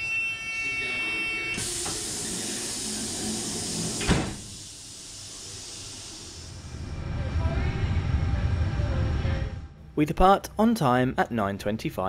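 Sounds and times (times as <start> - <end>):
door warning tone: 0.0 - 2.6
air hissing: 1.6 - 6.8
train door shutting thump: 3.8 - 4.6.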